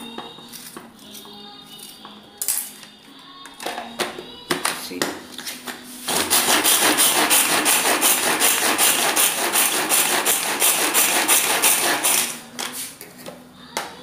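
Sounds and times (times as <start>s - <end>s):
vegetable chopper chopping: 6.1s - 12.4s.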